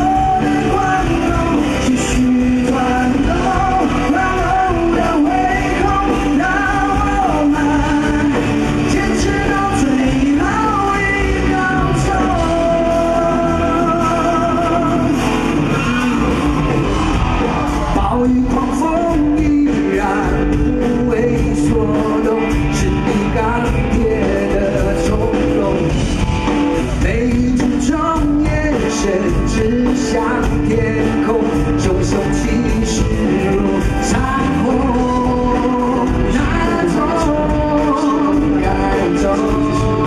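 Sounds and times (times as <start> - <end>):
man singing: 0.0 - 40.0
rock band playing: 0.0 - 40.0.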